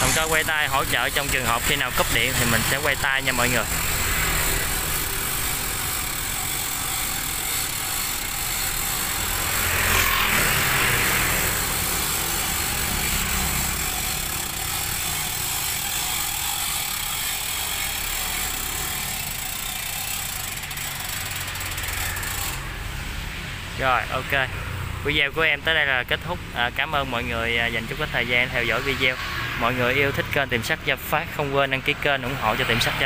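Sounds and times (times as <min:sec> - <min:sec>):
vehicle passing close: 0:00.0 - 0:19.8, 0:27.4 - 0:33.0
road traffic rumble and hiss: 0:00.0 - 0:33.0.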